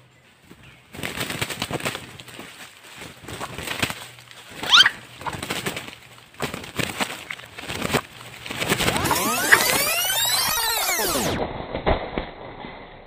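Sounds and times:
rooster wings beating in leaves: 0:00.4 - 0:10.4.

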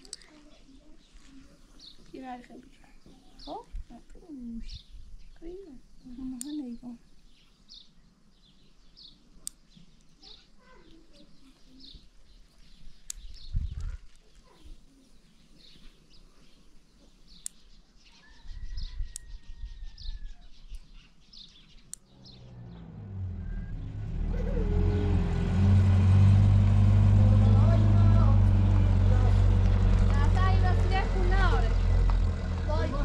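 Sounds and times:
small birds chirping: 0:00.0 - 0:25.6
vehicle engine rumble: 0:22.0 - 0:33.0.

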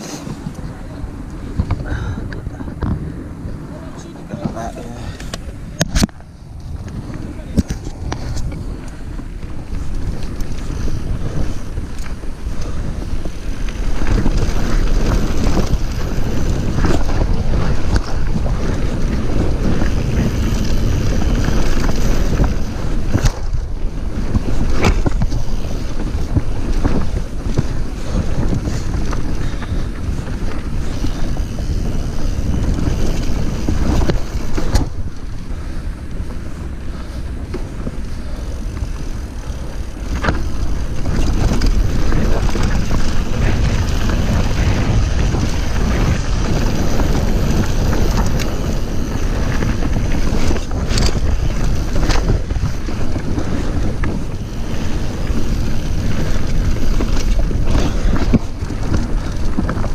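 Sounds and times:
bike knocking and rattling: 0:00.0 - 0:59.9
mountain bike rumbling on dirt trail: 0:00.0 - 0:59.9
wind buffeting microphone: 0:00.0 - 0:59.9.

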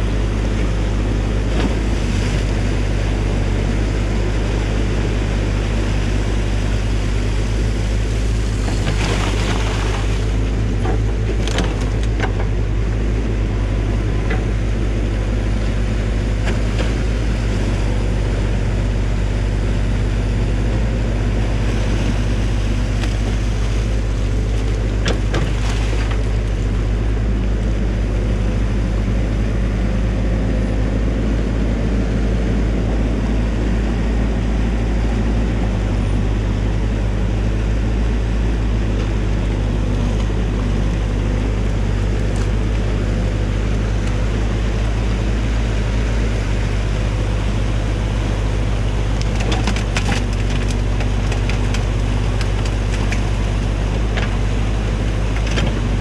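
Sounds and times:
excavator diesel engine running: 0:00.0 - 0:56.0
water rushing: 0:00.0 - 0:56.0
bucket scraping mud and branches: 0:08.2 - 0:12.0, 0:46.9 - 0:56.0.

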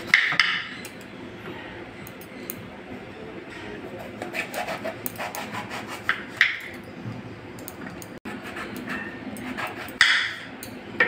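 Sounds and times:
knife scraping: 0:03.6 - 0:06.4, 0:08.3 - 0:10.0.

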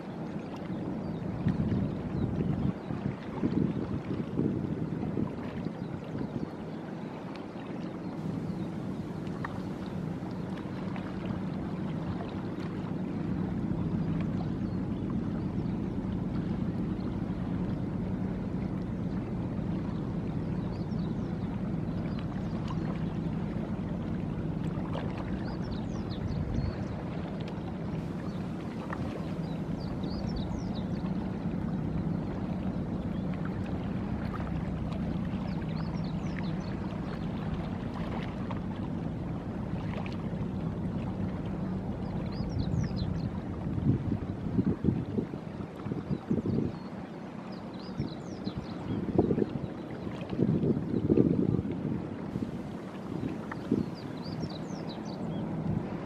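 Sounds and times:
ship engines droning: 0:06.5 - 0:46.0, 0:52.1 - 0:56.0.

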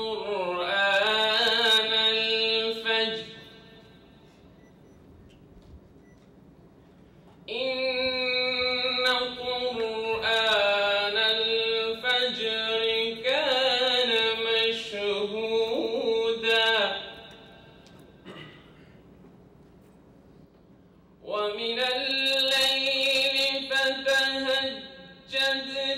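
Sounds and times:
man chanting recitation: 0:00.0 - 0:03.9, 0:07.5 - 0:17.8, 0:21.2 - 0:25.9.

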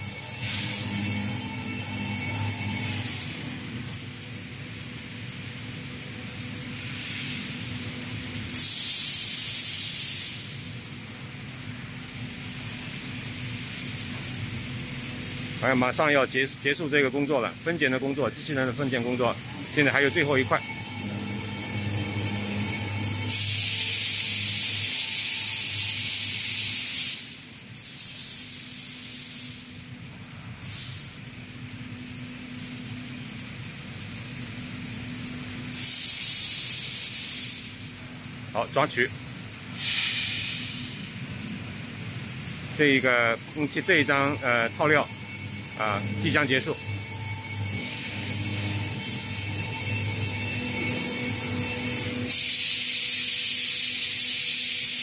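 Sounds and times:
steady machine hum: 0:00.0 - 0:55.0
compressed air hiss: 0:00.3 - 0:01.2, 0:06.8 - 0:07.5, 0:08.6 - 0:10.7, 0:22.3 - 0:29.8, 0:30.6 - 0:31.2, 0:35.8 - 0:37.9, 0:39.7 - 0:41.1, 0:50.8 - 0:55.0.

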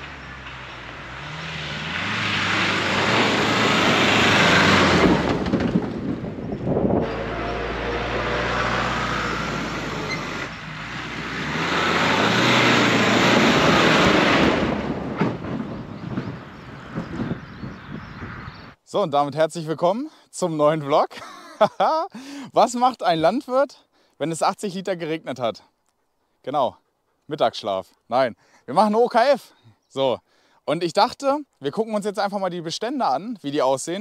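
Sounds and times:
pickup truck driving on dirt: 0:00.0 - 0:18.7.

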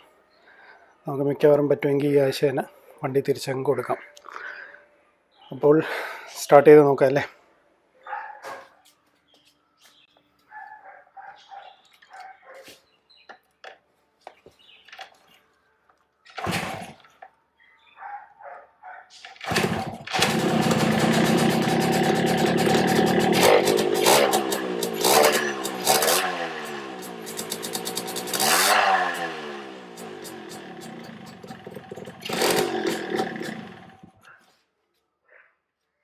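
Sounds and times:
motorcycle kick-start: 0:16.3 - 0:17.2, 0:19.2 - 0:34.2
two-stroke engine revving: 0:16.4 - 0:17.0, 0:19.4 - 0:34.2.

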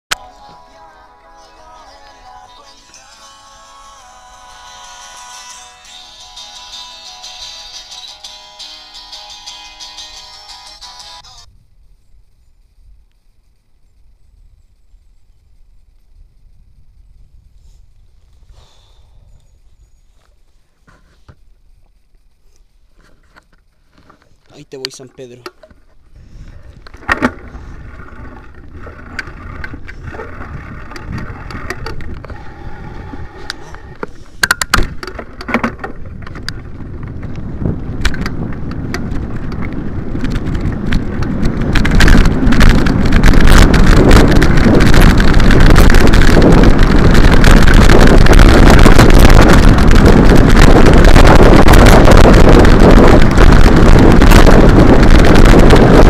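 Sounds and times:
wind rushing over microphone: 0:26.0 - 0:56.0.

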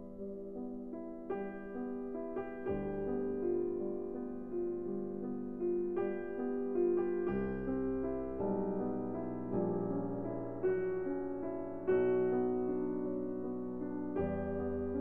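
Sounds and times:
piano chords ringing: 0:00.0 - 0:15.0.

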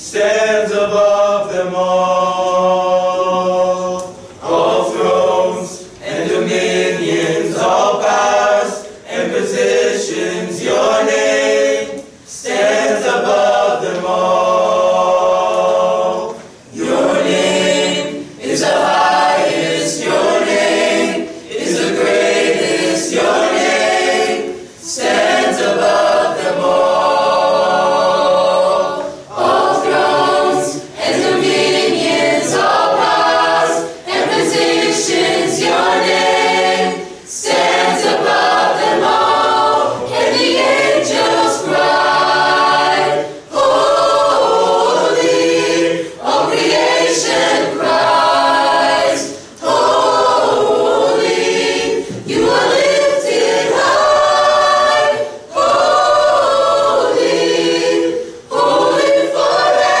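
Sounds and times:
mixed choir singing: 0:00.0 - 1:00.0.

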